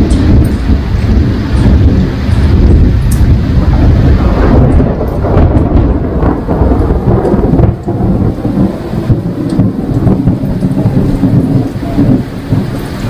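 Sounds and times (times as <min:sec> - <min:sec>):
heavy rain: 0:00.0 - 0:13.0
thunder rumbling: 0:00.0 - 0:13.0.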